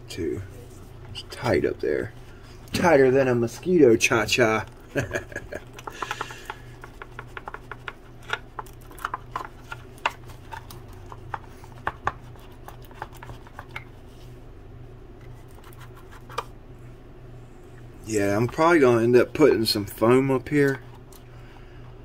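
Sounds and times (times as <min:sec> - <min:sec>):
steady low hum: 0:00.0 - 0:22.0
brush tapping and scratching hull: 0:00.6 - 0:14.3, 0:18.1 - 0:21.1.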